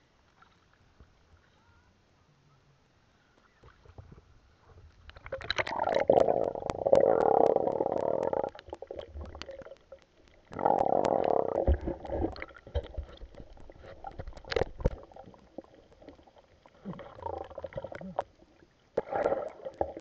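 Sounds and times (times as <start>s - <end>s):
underwater gurgling and bubbling: 5.2s - 20.0s.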